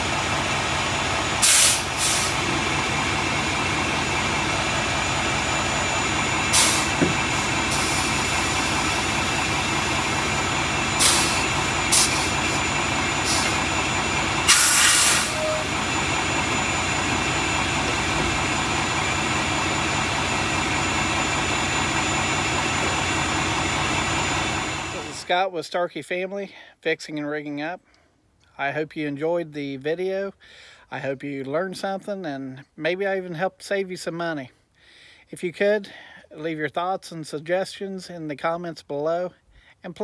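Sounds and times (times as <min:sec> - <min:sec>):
diesel truck engine running: 0:00.0 - 0:25.3
air system hissing: 0:01.4 - 0:02.6, 0:06.5 - 0:13.8, 0:14.4 - 0:17.1.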